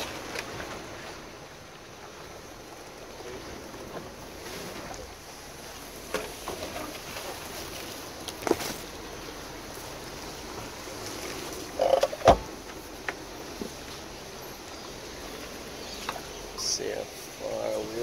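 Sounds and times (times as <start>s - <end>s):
vehicle thumping over rocks: 11.8s - 12.8s.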